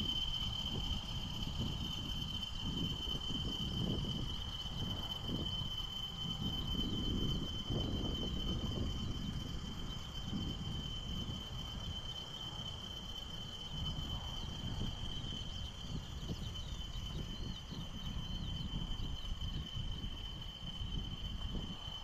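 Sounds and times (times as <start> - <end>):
high-pitched whine: 0.0 - 22.0.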